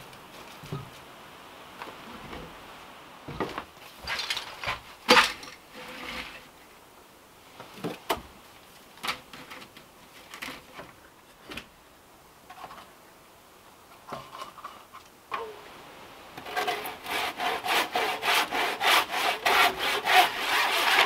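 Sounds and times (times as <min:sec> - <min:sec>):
wicker basket scraping on wood: 0:05.7 - 0:06.5, 0:16.4 - 0:21.0.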